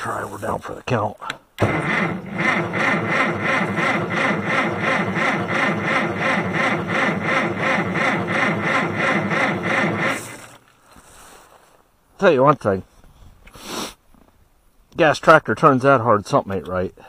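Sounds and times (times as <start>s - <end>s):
starter cranking engine slowly: 1.6s - 10.6s.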